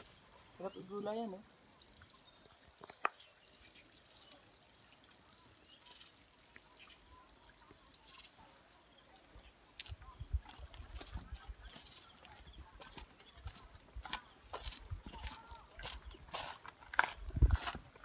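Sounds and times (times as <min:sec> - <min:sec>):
high-pitched insect trill: 0:00.0 - 0:18.0
footsteps on trail: 0:09.7 - 0:18.0.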